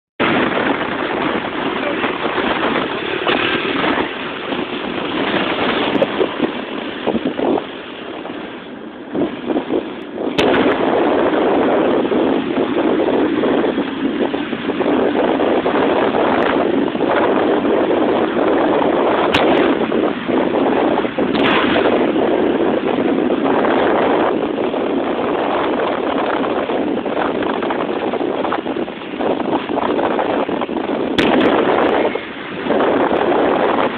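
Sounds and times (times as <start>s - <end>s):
wind buffeting on microphone: 0.2s - 33.9s.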